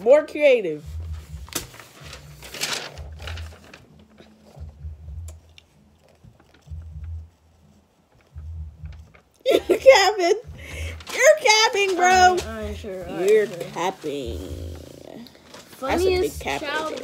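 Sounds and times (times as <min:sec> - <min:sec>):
paper rustling and crinkling: 0:01.1 - 0:04.7, 0:06.0 - 0:06.8, 0:10.8 - 0:14.4, 0:15.2 - 0:17.0.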